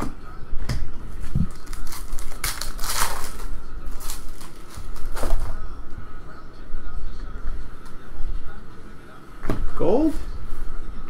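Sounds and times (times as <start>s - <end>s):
foil wrapper crinkling and tearing: 1.5s - 5.4s.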